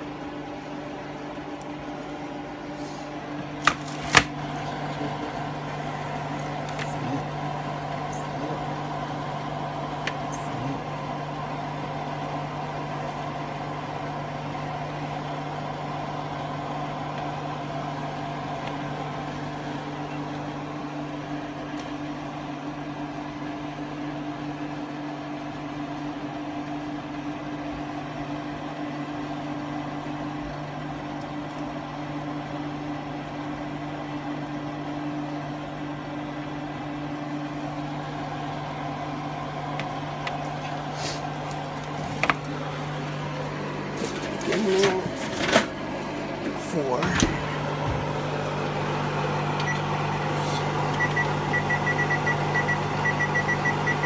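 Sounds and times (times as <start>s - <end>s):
appliance fan motor humming: 0.0s - 54.0s.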